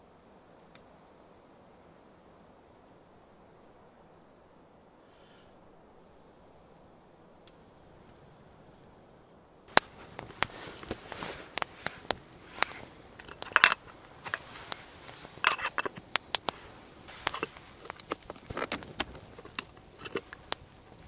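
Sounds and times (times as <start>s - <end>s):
campfire crackling and popping: 0.5s - 1.1s, 7.4s - 8.3s, 9.7s - 21.0s.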